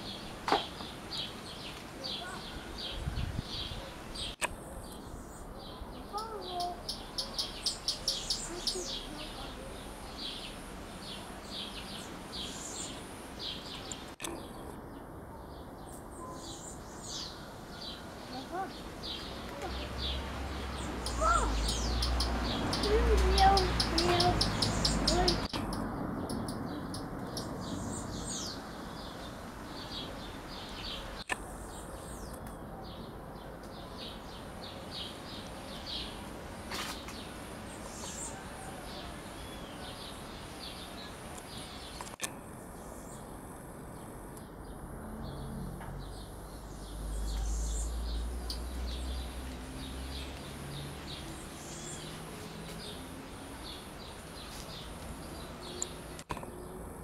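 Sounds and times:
background hiss: 0.0s - 25.5s
birds chirping: 0.0s - 57.0s.

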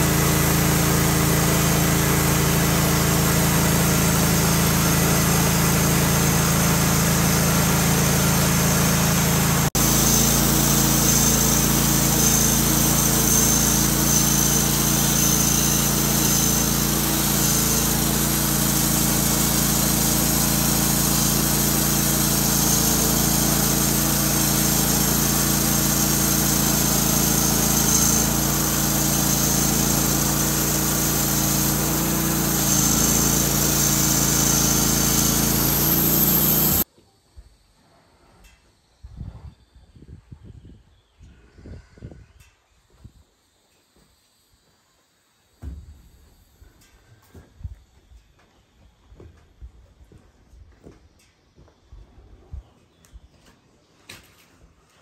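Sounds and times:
band sawmill cutting log: 0.0s - 36.9s.

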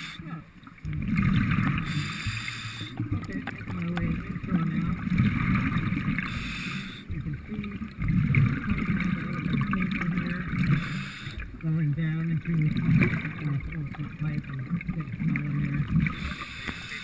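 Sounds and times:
diver breathing underwater: 0.0s - 0.3s, 1.0s - 3.2s, 5.5s - 7.2s, 10.5s - 11.6s, 16.0s - 17.0s
exhaust bubbles rumbling: 0.0s - 17.0s.

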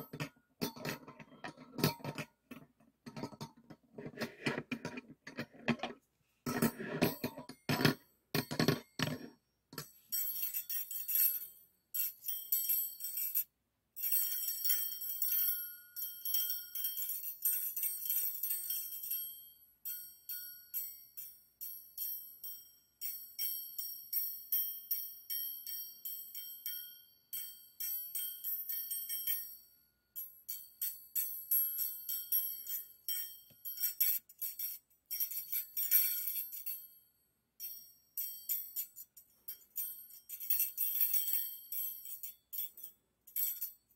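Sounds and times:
wire beaters clinking together: 0.0s - 11.4s.

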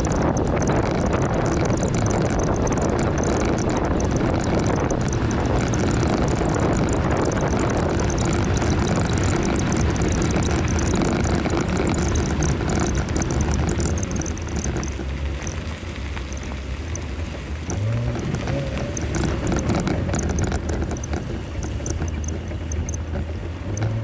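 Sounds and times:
off-road vehicle engine and tyres: 0.0s - 24.0s
small crackles: 0.0s - 24.0s.

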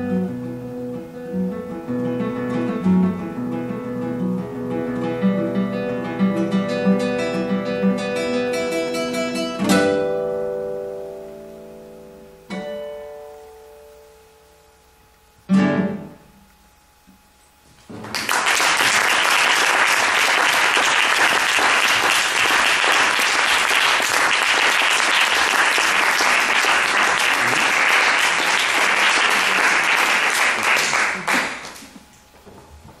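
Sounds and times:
classical guitar chord: 0.0s - 14.8s, 15.4s - 16.5s
audience applauding: 17.9s - 32.0s.

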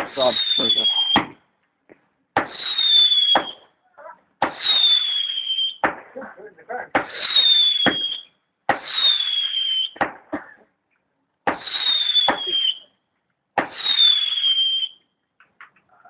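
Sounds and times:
whistling fireworks: 0.0s - 1.5s, 2.4s - 3.8s, 4.4s - 6.1s, 6.9s - 10.3s, 11.5s - 13.0s, 13.6s - 15.1s
firework pops: 1.0s - 3.7s, 4.4s - 4.8s, 5.7s - 6.2s, 6.9s - 9.1s, 9.8s - 10.6s, 11.4s - 12.7s, 13.6s - 14.1s.

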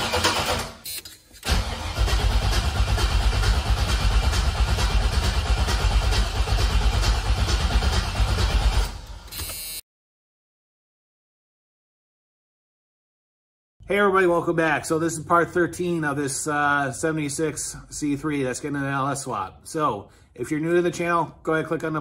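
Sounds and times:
engine cranking without firing: 0.0s - 0.8s, 1.4s - 9.2s.

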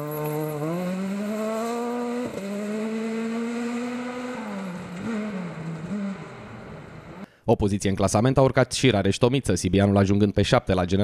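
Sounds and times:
rally car engine at full throttle: 0.0s - 7.3s.

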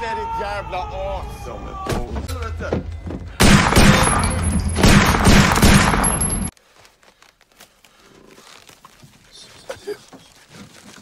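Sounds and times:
rapid gunfire: 3.4s - 4.2s, 4.8s - 6.2s.

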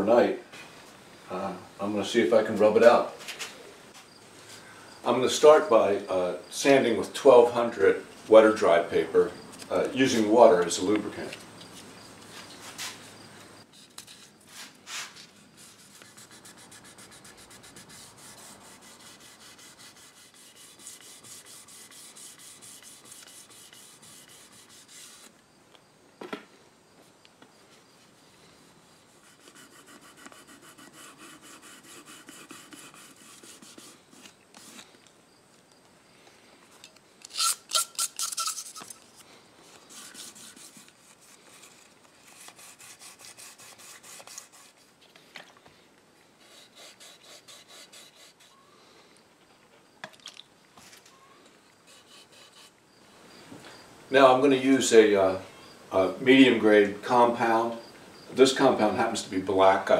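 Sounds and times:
wet sandpaper rubbing: 13.8s - 25.3s, 29.0s - 34.9s, 37.3s - 39.0s, 39.6s - 44.9s, 46.4s - 48.6s, 51.8s - 52.8s.

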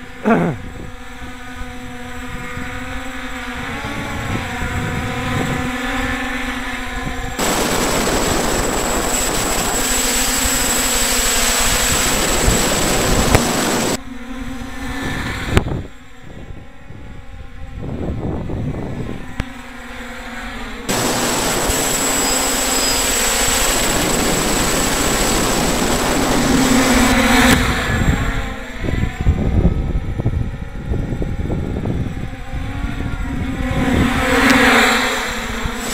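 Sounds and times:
drone rotors buzzing: 0.0s - 16.2s, 19.2s - 35.9s
wind: 0.0s - 35.9s
thin high whistle: 21.6s - 23.9s.

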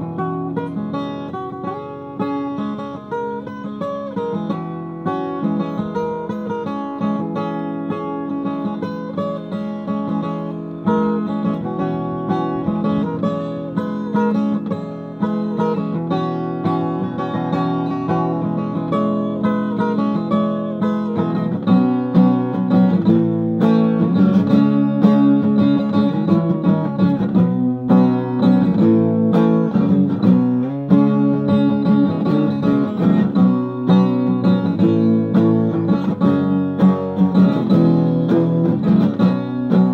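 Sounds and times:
acoustic guitar: 0.0s - 39.9s.

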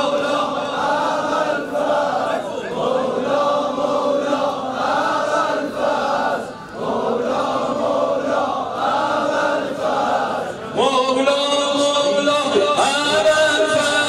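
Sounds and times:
crowd of men chanting: 0.0s - 11.1s.

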